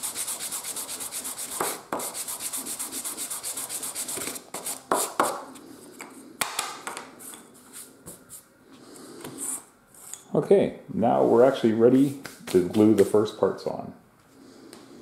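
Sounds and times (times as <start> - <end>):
sanding sponge scratching wood: 0.0 - 5.2.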